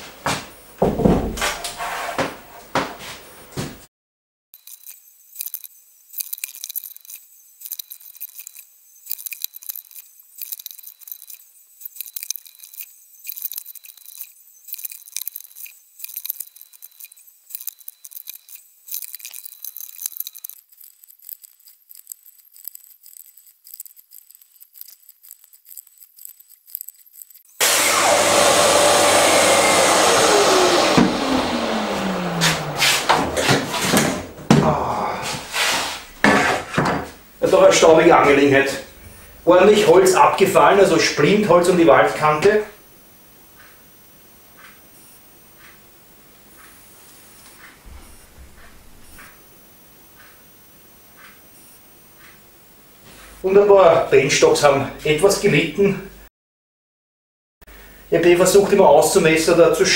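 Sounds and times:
track saw cutting wood: 6.3s - 34.3s
saw blade spinning down whine: 21.6s - 34.0s.

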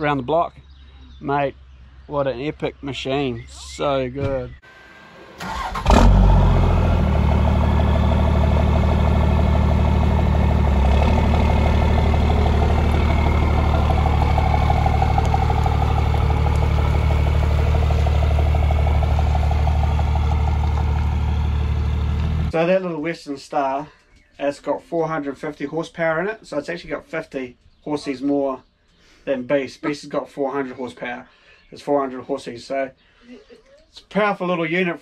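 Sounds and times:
truck engine idling: 4.5s - 22.5s.

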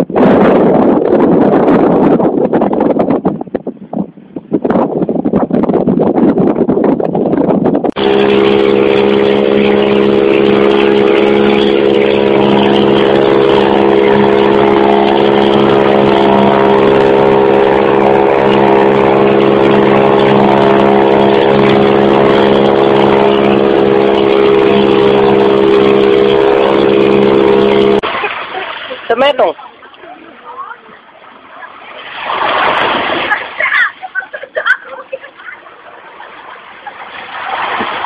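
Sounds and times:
boat engine droning: 7.8s - 38.0s
wind and water hiss: 7.8s - 38.0s.

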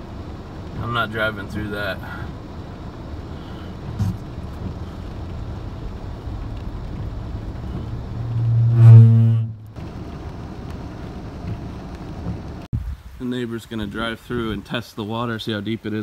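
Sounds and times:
car idling: 0.0s - 12.7s
rain: 0.0s - 16.0s
low-pitched steady tone: 7.6s - 9.8s.

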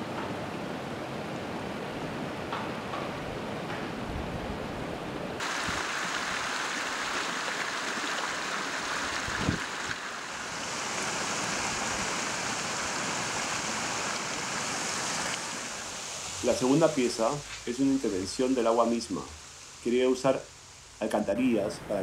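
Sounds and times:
water rushing off metal gutters: 5.4s - 21.0s.

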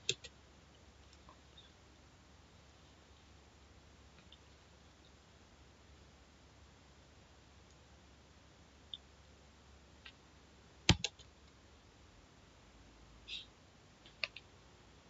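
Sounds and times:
keyboard key clicks: 10.9s - 11.2s.

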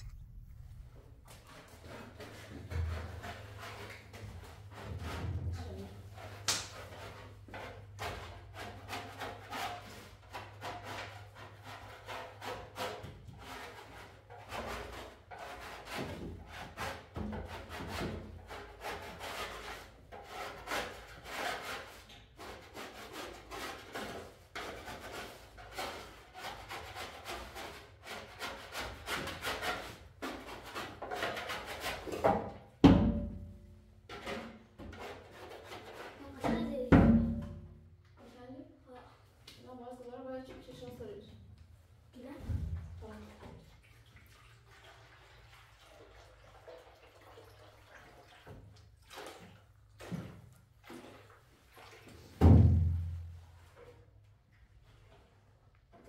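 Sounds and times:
scraping and rubbing strokes: 0.0s - 32.3s, 34.1s - 36.4s.

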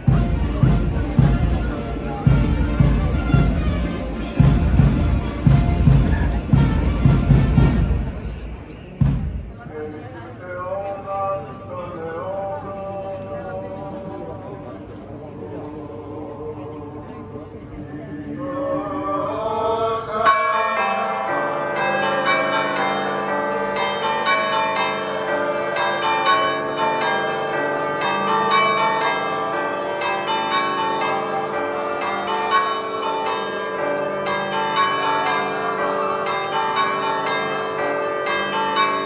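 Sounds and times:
church bells pealing: 20.0s - 39.0s.

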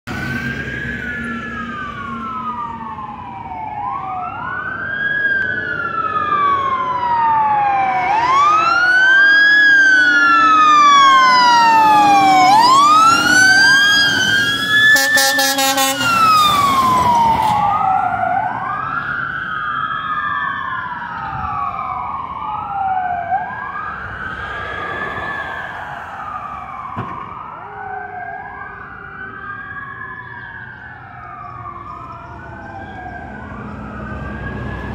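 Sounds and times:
fire truck sirens wailing: 0.1s - 34.9s
truck engine: 5.5s - 20.4s, 28.5s - 34.9s
harsh pulsing horn blast: 14.9s - 16.3s.

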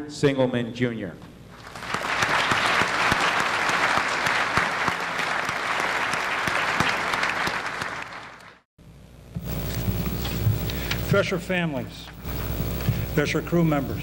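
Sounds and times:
audience applauding: 1.6s - 8.6s.

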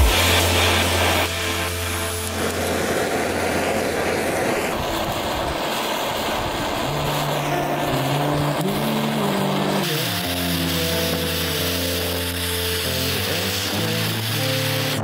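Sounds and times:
electronic music: 0.0s - 3.3s
rushing hiss-like noise: 0.0s - 15.0s.

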